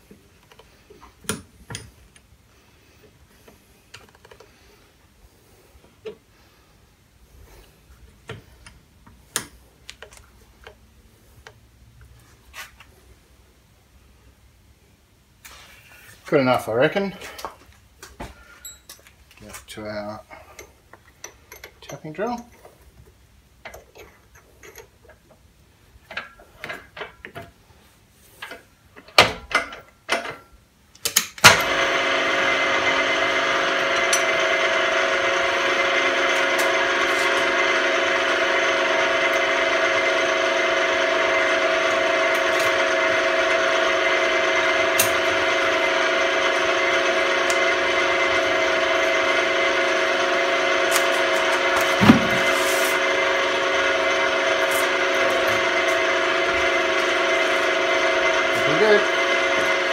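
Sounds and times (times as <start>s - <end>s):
drilling machine humming and whining: 31.5s - 59.9s.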